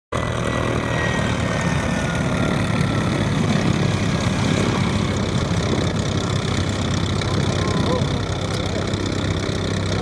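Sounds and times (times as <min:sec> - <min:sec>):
engine rumble: 0:00.1 - 0:10.0.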